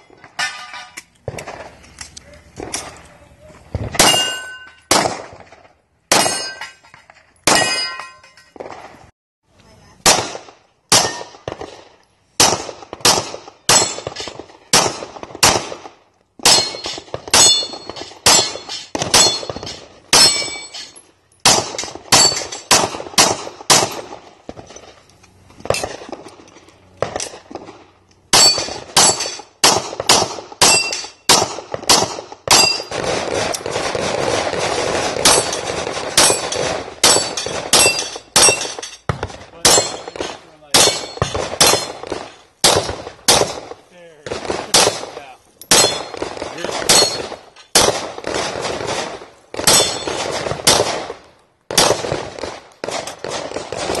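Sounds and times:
pistol shots: 3.8 - 6.6, 7.4 - 8.0, 10.0 - 25.0, 25.6 - 54.0
steel plate ringing: 4.1 - 4.9.

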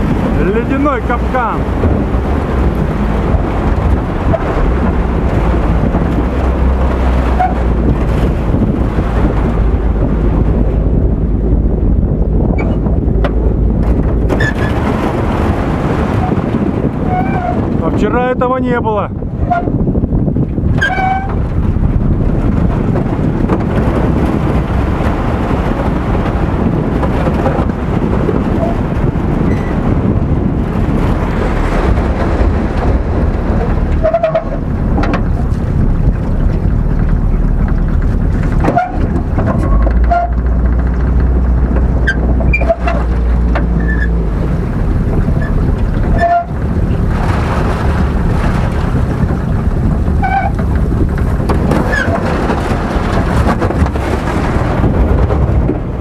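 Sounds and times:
hull rushing over water and ice: 0.0 - 56.0
motor boat engine: 0.0 - 56.0
sharp knocks on hull: 30.8 - 56.0.

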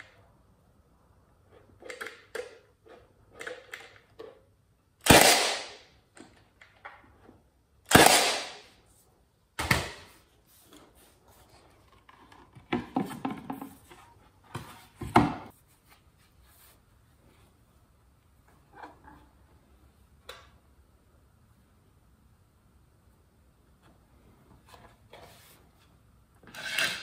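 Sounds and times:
nail gun shots: 5.0 - 5.9, 7.9 - 8.7
knocks and clicks handling wood: 11.8 - 15.5.

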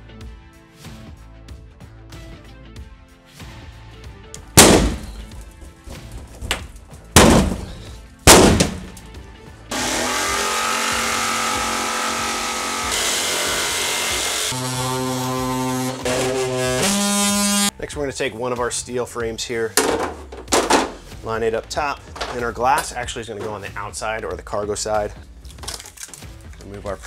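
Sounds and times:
sharp knocks: 4.6 - 9.0
cordless power tool running: 9.7 - 17.7
faint background music: 17.7 - 27.0.

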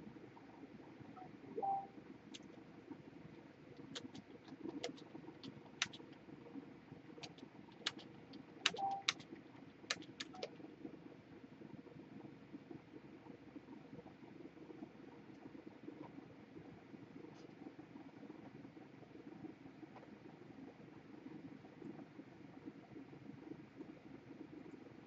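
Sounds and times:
faint clicks: 1.8 - 2.6, 3.3 - 6.2, 7.2 - 10.6.

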